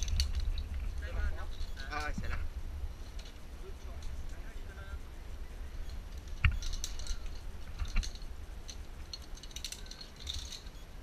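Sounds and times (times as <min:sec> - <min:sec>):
harness hardware clicking and clinking: 0:00.0 - 0:02.4, 0:05.7 - 0:11.0
low steady rumble: 0:00.0 - 0:11.0.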